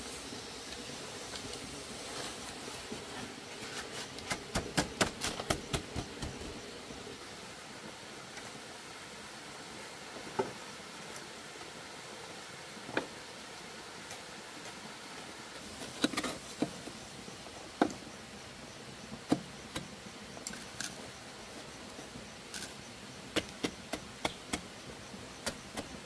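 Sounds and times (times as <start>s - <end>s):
steady rushing hiss: 0.0s - 26.0s.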